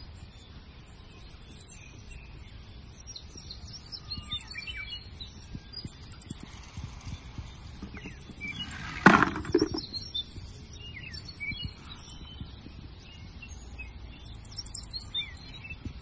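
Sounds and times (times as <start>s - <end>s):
birds chirping: 0.4s - 16.0s
metal toys clattering into bucket: 8.7s - 9.8s.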